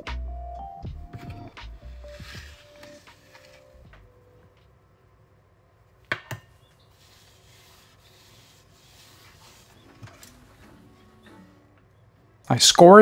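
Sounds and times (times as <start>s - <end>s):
flour sifting from shaker: 6.9s - 9.9s.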